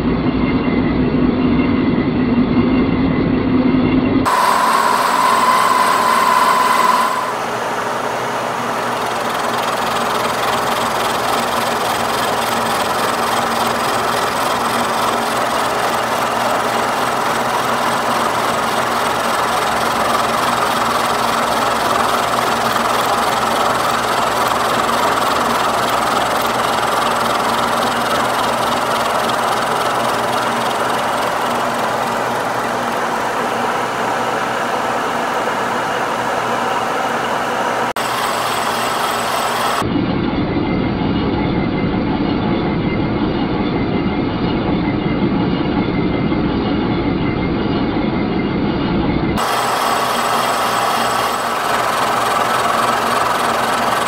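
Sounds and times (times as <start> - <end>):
high steady tone: 4.3 - 36.1
gritty metal cutting noise: 4.3 - 36.8
milling machine hum: 4.3 - 39.9, 49.4 - 54.0.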